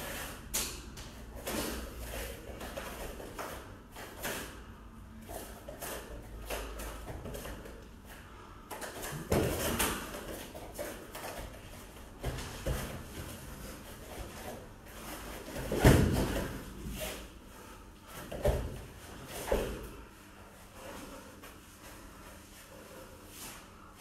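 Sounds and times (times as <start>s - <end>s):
bodies thudding onto foam mats: 15.3s - 16.9s.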